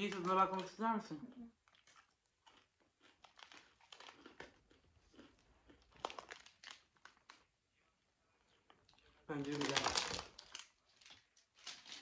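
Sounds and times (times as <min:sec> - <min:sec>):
plastic bag crinkling: 0:00.0 - 0:00.8, 0:01.7 - 0:07.5, 0:08.9 - 0:12.0
crunchy chewing: 0:01.6 - 0:07.5.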